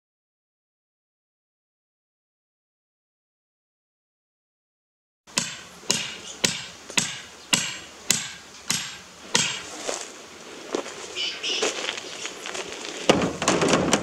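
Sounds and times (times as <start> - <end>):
hammer striking steel picket: 5.3 - 9.7.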